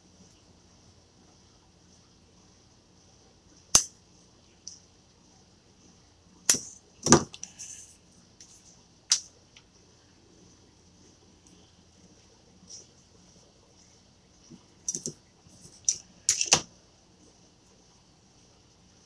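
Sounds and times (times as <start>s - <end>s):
metallic clicks of handling: 15.8s - 16.6s.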